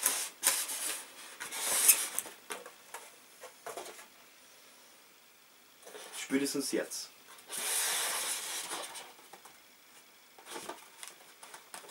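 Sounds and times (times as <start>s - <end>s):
polystyrene foam scraping: 0.0s - 2.2s, 7.4s - 9.2s.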